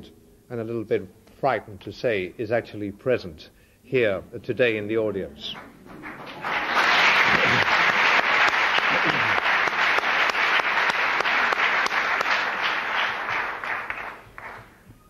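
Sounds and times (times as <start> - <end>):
audience applauding: 5.4 - 14.9.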